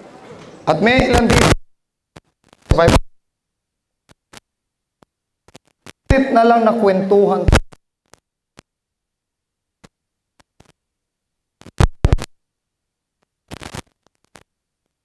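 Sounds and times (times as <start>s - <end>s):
short scratchy rustle: 13.5s - 14.5s.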